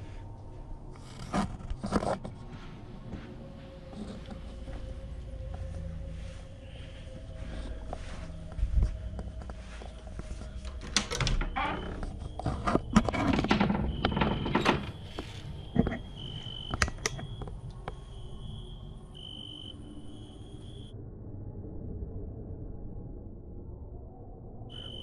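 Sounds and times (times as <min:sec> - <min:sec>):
cricket trilling: 0:11.4 - 0:20.9, 0:24.7 - 0:25.0.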